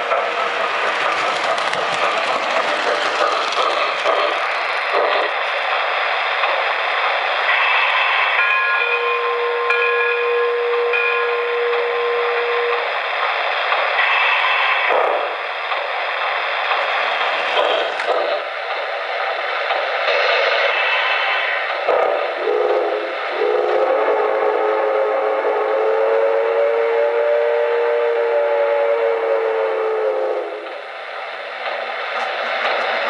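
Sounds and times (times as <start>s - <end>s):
model train wheel rumble: 0.0s - 6.7s
steam hiss: 0.0s - 33.0s
steam whistle: 7.6s - 12.9s, 22.0s - 30.6s.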